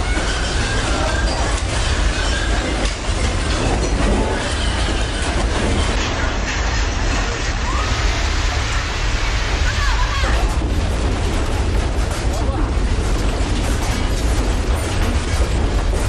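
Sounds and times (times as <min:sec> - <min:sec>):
shelving and merchandise rattling: 0:00.0 - 0:16.0
earthquake low rumble: 0:05.1 - 0:16.0.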